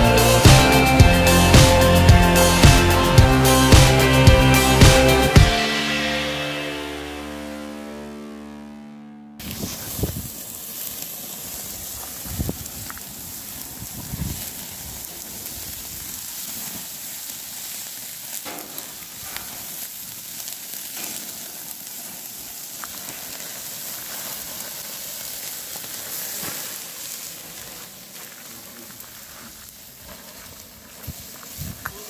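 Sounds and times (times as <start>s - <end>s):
faint crackles of embers: 9.4s - 32.0s
sausages sizzling on a grill: 9.4s - 32.0s.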